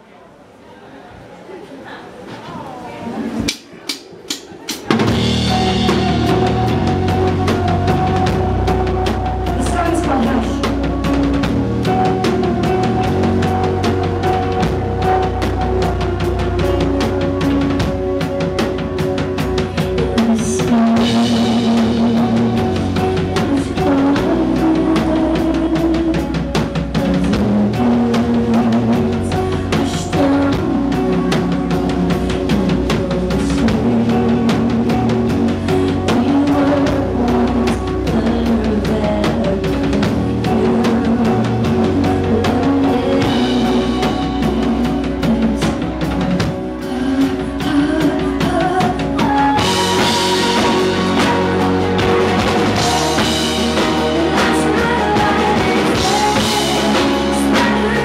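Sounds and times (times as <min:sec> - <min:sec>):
drum kit beat: 0:03.5 - 0:58.0
rock band playing: 0:04.0 - 0:58.0.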